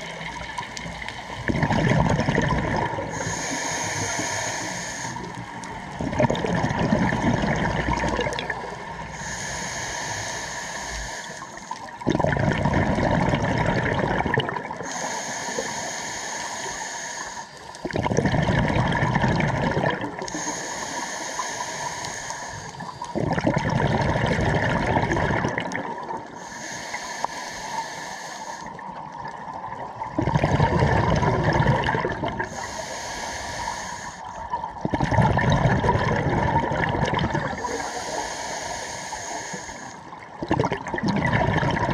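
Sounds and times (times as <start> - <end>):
exhaled bubbles underwater: 0.0 - 9.6, 11.0 - 15.8, 16.5 - 26.8, 28.0 - 41.9
hissing regulator inhale: 3.0 - 6.0, 8.7 - 11.9, 14.8 - 17.9, 20.2 - 23.3, 26.2 - 29.0, 32.4 - 34.5, 37.6 - 40.2.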